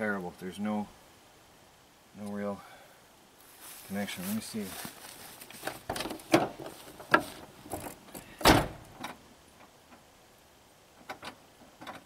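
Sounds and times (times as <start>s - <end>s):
truck door clunking: 5.9s - 9.2s
door shutting with heavy thump: 8.4s - 8.9s.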